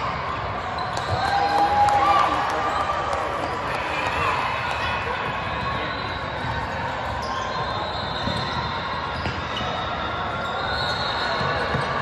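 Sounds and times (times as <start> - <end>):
basketball bouncing on court: 8.2 - 9.6, 11.4 - 12.0.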